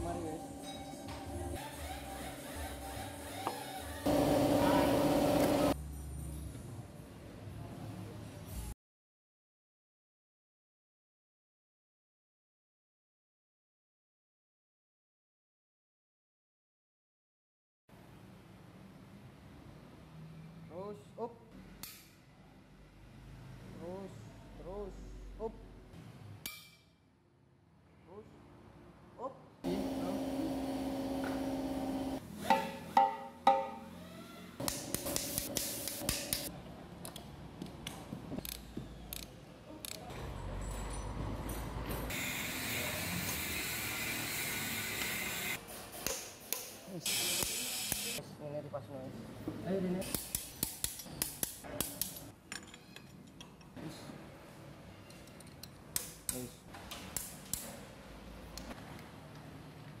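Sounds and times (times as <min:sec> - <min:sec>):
hand tools clicking and tapping: 0:34.6 - 0:40.0, 0:50.0 - 0:53.7, 0:55.0 - 0:57.8.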